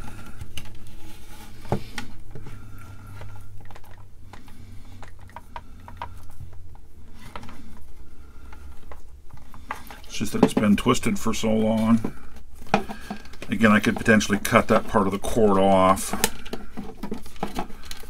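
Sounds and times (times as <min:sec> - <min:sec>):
cord clicking and scraping in plastic case: 0:00.0 - 0:18.0.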